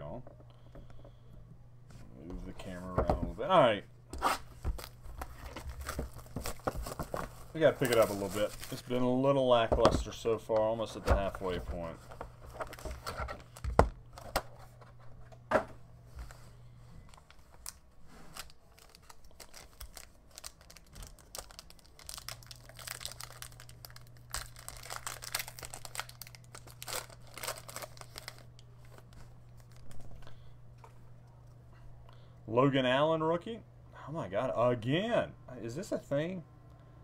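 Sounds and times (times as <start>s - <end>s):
low steady hum: 0.0s - 37.0s
foil pack crinkling and tearing: 4.8s - 9.1s, 17.1s - 30.0s.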